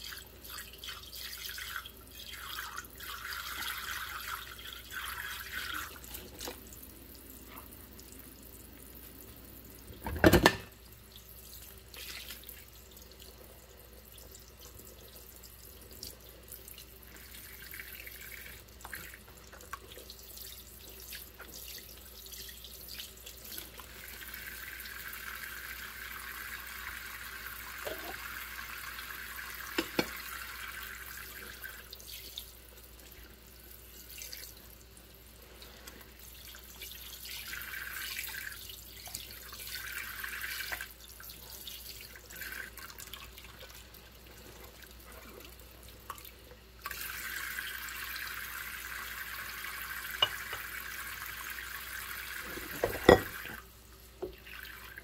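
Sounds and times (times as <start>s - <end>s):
water splashing in a sink: 0.0s - 55.0s
dishes clinking: 10.0s - 10.7s, 50.2s - 50.7s, 52.5s - 53.6s.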